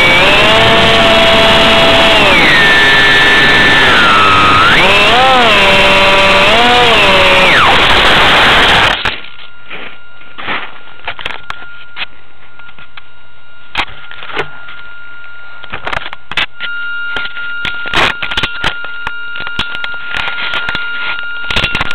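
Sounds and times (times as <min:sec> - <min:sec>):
higher electronic tones: 0:00.0 - 0:10.4
thin electronic whine: 0:00.0 - 0:21.9.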